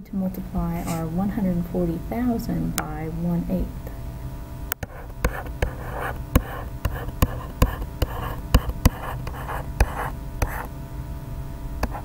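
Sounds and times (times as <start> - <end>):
stylus tapping on tablet: 4.7 - 10.7
scratchy pen strokes: 4.8 - 10.7.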